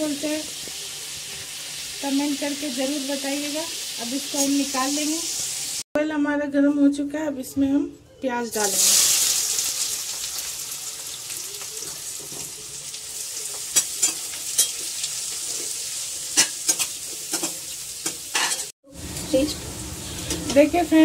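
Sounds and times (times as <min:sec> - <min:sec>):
onions sizzling in hot oil: 0:00.0 - 0:05.9, 0:08.5 - 0:21.0
spatula scraping and tapping wok: 0:13.4 - 0:18.7.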